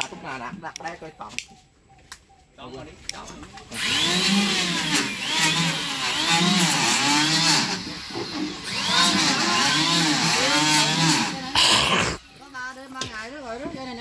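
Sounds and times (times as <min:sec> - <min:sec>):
power tool cutting wood: 0:03.7 - 0:12.2.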